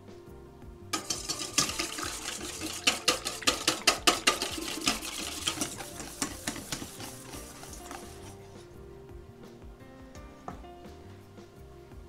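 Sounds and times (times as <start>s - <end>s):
whisk clicking against metal bowl: 1.0s - 8.4s
light sloshing of cream: 1.0s - 8.6s.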